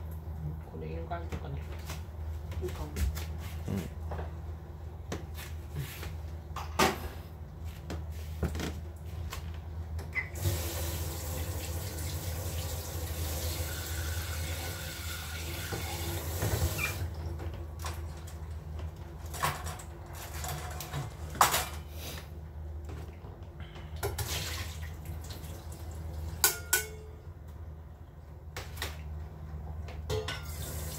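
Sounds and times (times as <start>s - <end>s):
tap running into sink: 15.4s - 17.0s.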